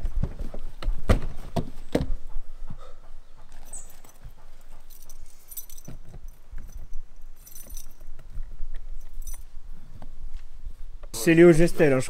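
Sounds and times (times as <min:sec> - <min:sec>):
keys jingling: 0:03.5 - 0:09.6.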